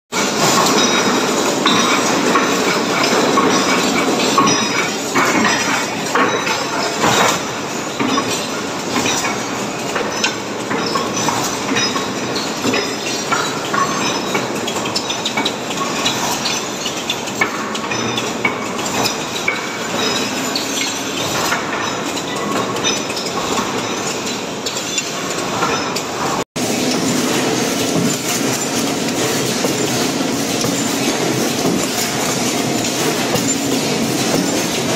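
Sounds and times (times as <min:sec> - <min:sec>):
machines clattering metallically: 0:00.1 - 0:34.9.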